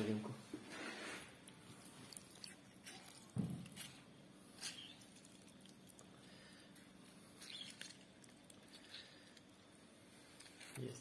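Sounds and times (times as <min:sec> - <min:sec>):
lemon being squeezed: 0:07.4 - 0:08.1.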